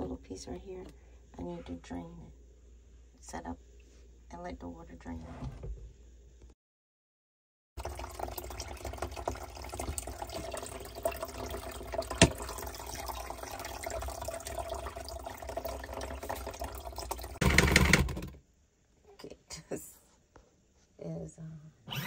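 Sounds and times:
water pouring into a basin: 7.8s - 17.4s.

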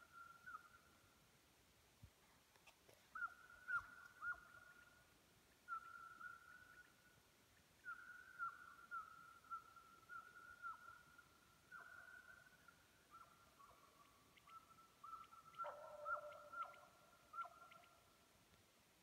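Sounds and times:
distant hounds baying: 11.7s - 12.5s, 13.1s - 18.0s.

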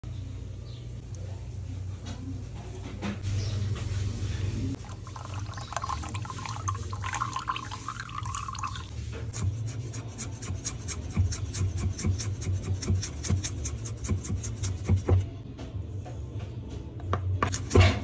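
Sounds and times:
oil trickling into ceramic cup: 4.8s - 8.9s.

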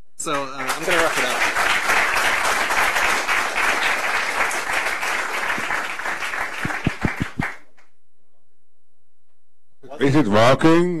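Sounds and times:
audience applauding: 0.2s - 7.7s.

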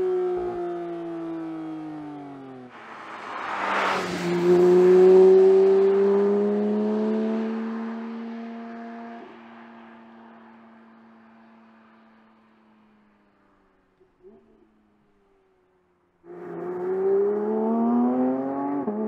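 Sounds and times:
car engine accelerating away: 0.0s - 11.1s, 16.3s - 19.0s.

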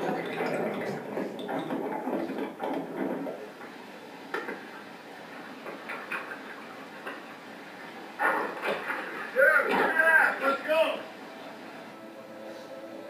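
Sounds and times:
faint clicks and knocks: 0.0s - 4.8s, 5.4s - 7.3s.

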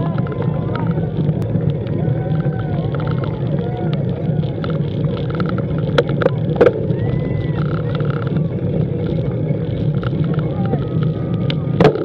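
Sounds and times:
spectators cheering and whooping: 0.0s - 4.9s, 6.4s - 8.4s, 10.4s - 12.0s
steady low rumble: 0.0s - 12.0s.

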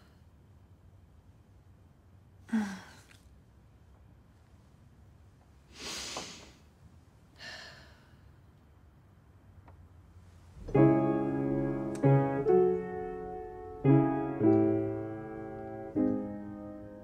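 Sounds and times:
woman breathing: 5.7s - 6.6s, 7.4s - 8.4s.

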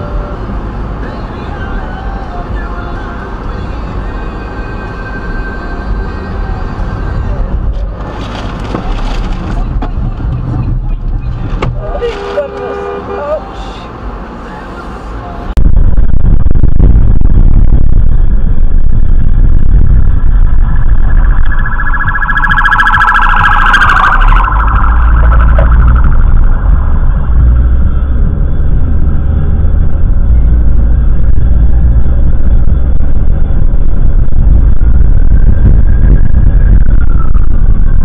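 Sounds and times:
vehicle driving rumble: 0.0s - 38.0s
car horn blaring: 11.8s - 13.7s.

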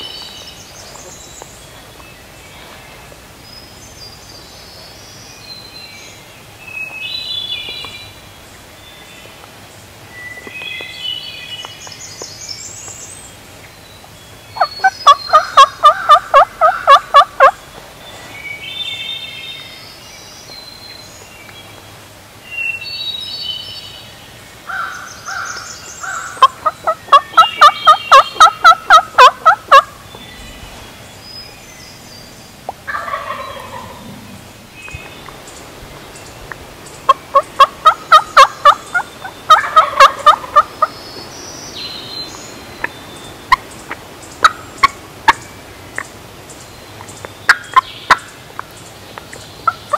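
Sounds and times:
songbirds singing faintly: 0.0s - 49.9s
turkey gobbling: 14.6s - 17.6s, 26.0s - 30.0s, 32.9s - 34.2s, 37.1s - 40.9s, 43.5s - 45.4s.

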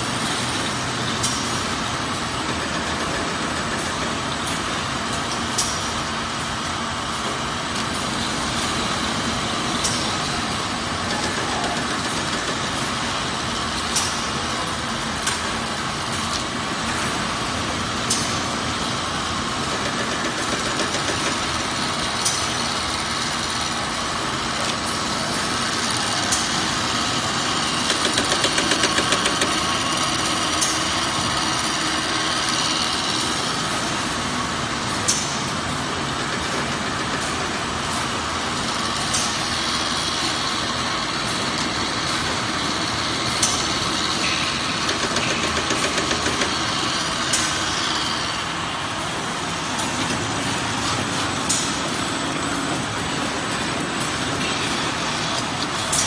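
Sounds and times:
machinery whirring: 0.0s - 56.0s
rapid mechanical ticking: 18.0s - 23.8s, 24.8s - 33.6s, 35.1s - 49.3s.

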